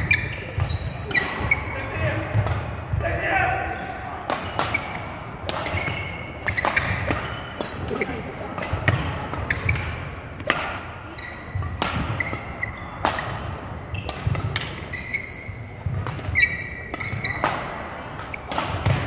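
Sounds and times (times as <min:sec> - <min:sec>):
racket hitting shuttlecock: 0:00.0 - 0:03.0, 0:04.2 - 0:19.0
shoes squeaking on court: 0:00.0 - 0:03.0, 0:03.6 - 0:19.0.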